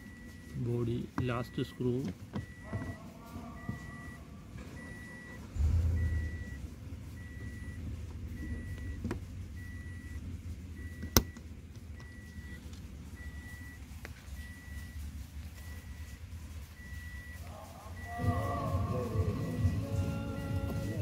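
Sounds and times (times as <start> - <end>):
faint high beep: 0.0 - 6.6, 7.2 - 9.0, 9.6 - 10.2, 13.2 - 13.8, 14.4 - 15.0, 15.6 - 21.0.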